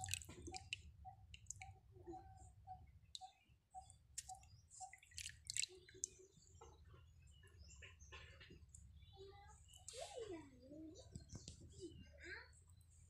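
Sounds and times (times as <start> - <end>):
prawns rinsed in steel bowl: 0.0 - 0.8, 4.9 - 6.2
water drips and splashes: 0.0 - 1.8, 4.2 - 6.2.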